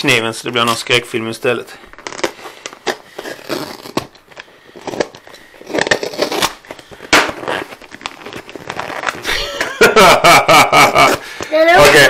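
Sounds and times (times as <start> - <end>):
knife cutting tape and cardboard: 4.9 - 7.8.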